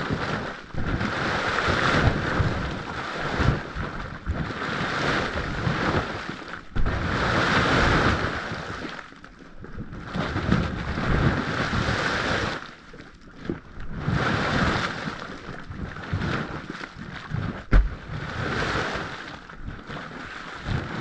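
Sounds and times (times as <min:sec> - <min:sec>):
boiling mud rumbling: 0:00.0 - 0:21.0.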